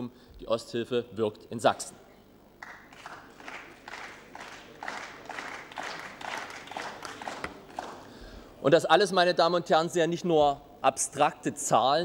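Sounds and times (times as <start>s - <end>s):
faint applause: 2.6s - 8.1s.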